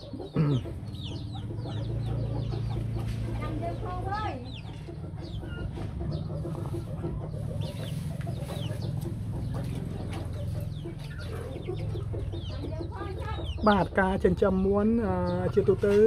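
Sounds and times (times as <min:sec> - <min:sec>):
chickens clucking: 0:00.0 - 0:16.0
chicks peeping: 0:00.0 - 0:16.0.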